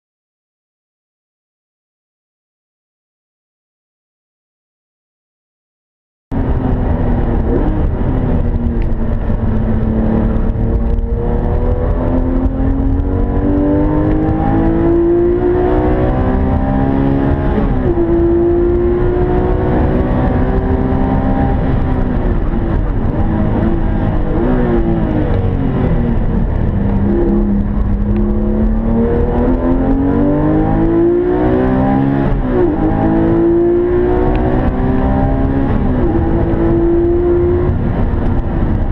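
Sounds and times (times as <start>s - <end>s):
car engine accelerating: 6.3s - 38.9s.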